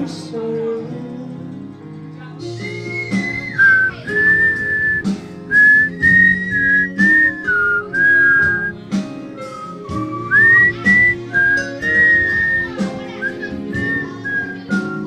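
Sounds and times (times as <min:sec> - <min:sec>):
backing music with guitar: 0:00.0 - 0:15.0
person whistling a tune: 0:02.4 - 0:08.8, 0:09.4 - 0:15.0.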